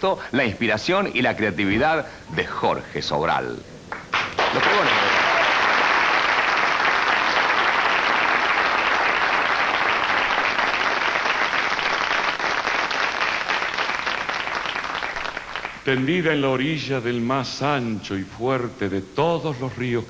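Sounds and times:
audience applauding: 0:03.9 - 0:16.0.

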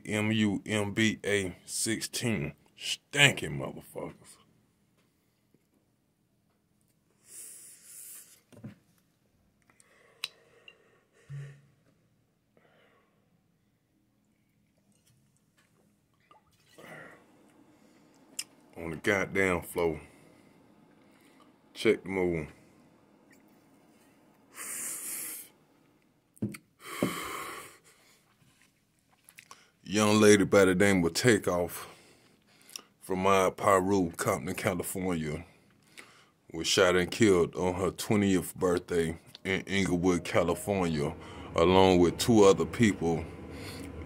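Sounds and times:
breathy exhale: 0:16.8 - 0:18.2, 0:41.2 - 0:41.6, 0:43.4 - 0:44.0
smoke blown out: 0:22.3 - 0:25.7, 0:40.0 - 0:44.0
brief low hum: 0:39.6 - 0:44.0.

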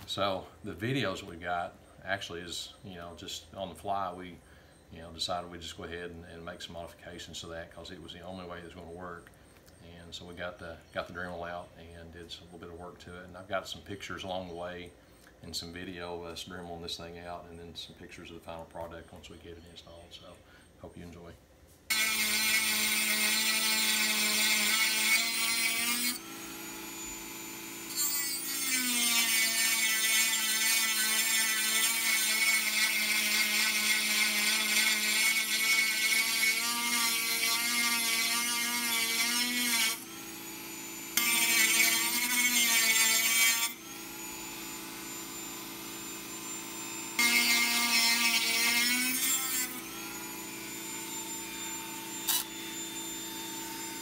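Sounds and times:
rotary tool grinding metal: 0:21.9 - 0:54.0.

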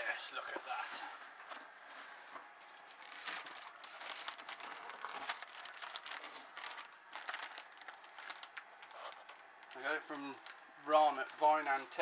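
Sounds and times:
plastic wrapping crinkling: 0:02.7 - 0:12.0.

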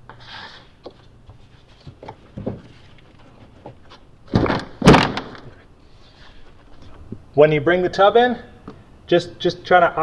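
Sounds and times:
heavy thud: 0:04.3 - 0:05.4.

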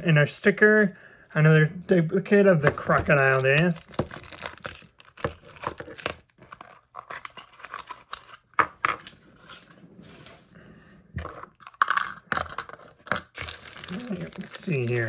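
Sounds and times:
packaging crinkling and tearing: 0:02.8 - 0:09.7, 0:11.5 - 0:15.0.

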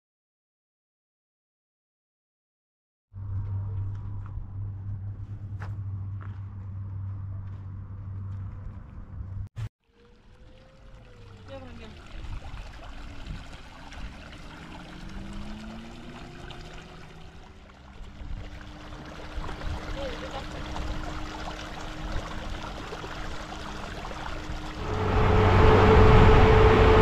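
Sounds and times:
stream trickling over stones: 0:09.8 - 0:25.1.

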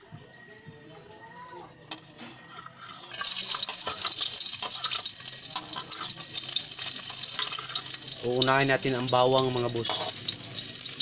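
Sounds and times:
garlic sizzling in hot oil: 0:03.0 - 0:11.0.

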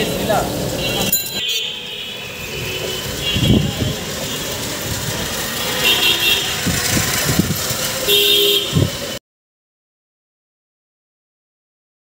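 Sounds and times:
busy street traffic: 0:00.0 - 0:09.2
vehicle horn honking: 0:00.8 - 0:07.0, 0:08.0 - 0:09.2.

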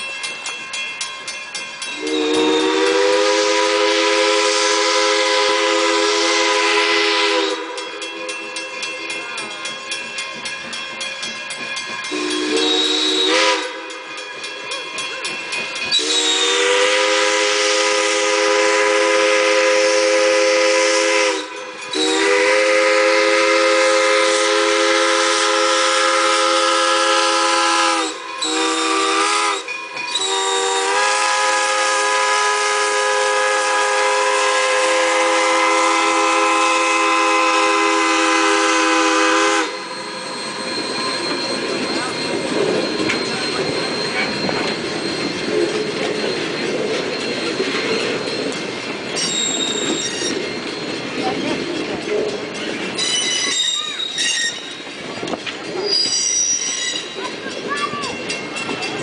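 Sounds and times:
steam locomotive chime whistle: 0:00.0 - 0:59.0.

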